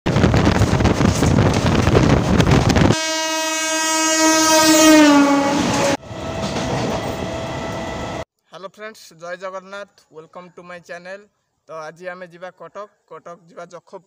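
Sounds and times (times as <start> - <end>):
train rumbling and rattling: 0.1 - 3.0, 5.3 - 8.2
electric locomotive horn: 2.8 - 8.2.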